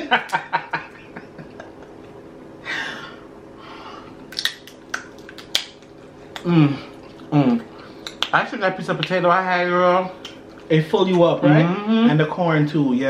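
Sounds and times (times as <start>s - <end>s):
crab shell cracking: 4.3s - 6.5s
chewing and biting: 4.3s - 8.4s.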